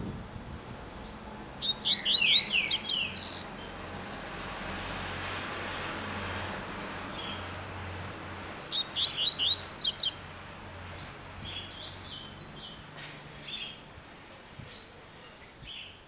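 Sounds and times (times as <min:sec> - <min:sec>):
bird chirping: 0:01.0 - 0:04.5, 0:06.8 - 0:07.9, 0:08.7 - 0:10.2, 0:11.0 - 0:12.8, 0:13.4 - 0:13.9, 0:14.7 - 0:16.0.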